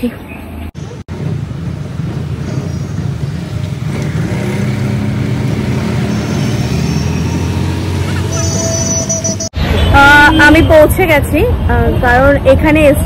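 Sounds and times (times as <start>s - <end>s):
traffic noise: 0.0s - 13.0s
auto-rickshaw engine running: 1.1s - 9.5s.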